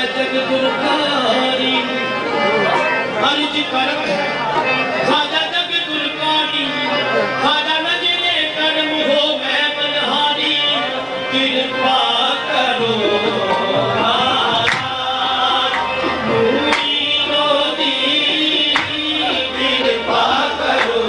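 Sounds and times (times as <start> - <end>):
harmonium: 0.0 - 21.0
men singing: 0.0 - 21.0
hand drum percussion: 14.6 - 15.0.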